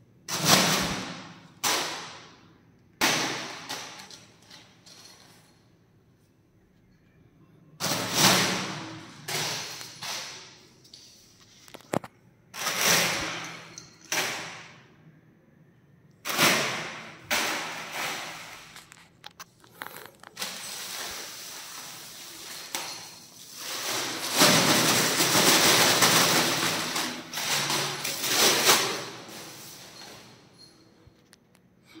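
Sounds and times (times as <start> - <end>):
plastic bag rustling and crinkling: 17.3 - 30.4.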